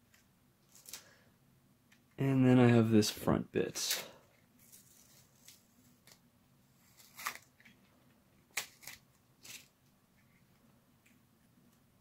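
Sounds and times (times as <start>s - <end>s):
masking tape peeling off plastic: 6.8s - 7.6s, 8.5s - 9.7s.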